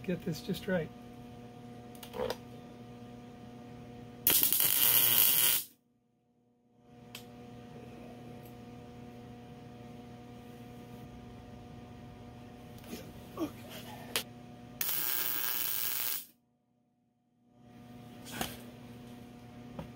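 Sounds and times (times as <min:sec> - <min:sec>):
low electrical hum: 0:00.0 - 0:05.8, 0:06.7 - 0:16.4, 0:17.4 - 0:19.9
welder crackling hiss: 0:04.3 - 0:05.7, 0:14.8 - 0:16.3.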